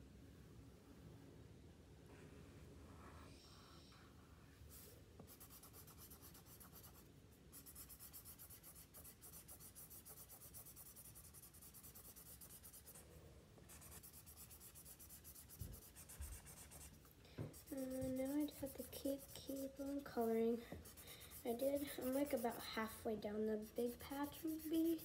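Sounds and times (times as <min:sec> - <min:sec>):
marker scribbling on paper: 0:04.7 - 0:13.0, 0:13.7 - 0:23.0, 0:23.6 - 0:25.0.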